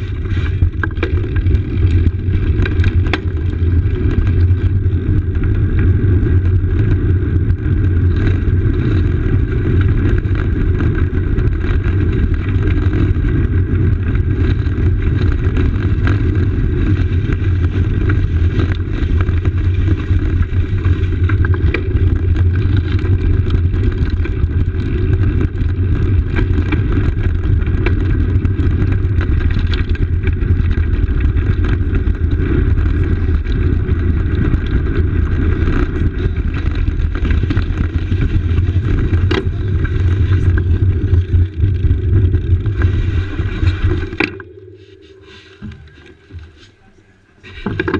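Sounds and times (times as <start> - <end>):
wind and road rumble: 0.0 - 47.9.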